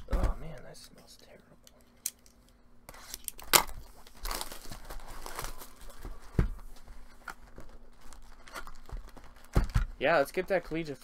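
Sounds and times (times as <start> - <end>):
plastic wrap tearing and crinkling: 3.0 - 6.1, 7.1 - 9.8.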